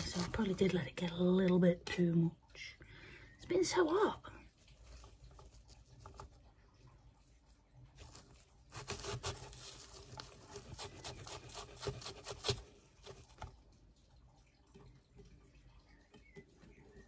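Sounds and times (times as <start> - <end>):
stick scraping gritty soil: 8.0 - 13.2
fingers pressing soil: 8.0 - 13.5.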